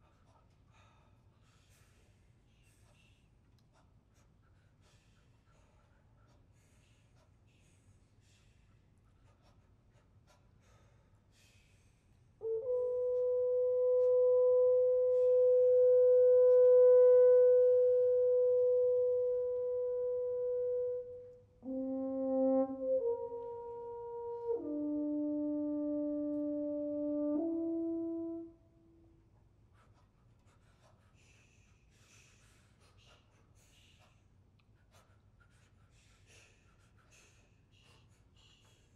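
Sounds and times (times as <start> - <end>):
french horns playing: 12.4 - 29.2.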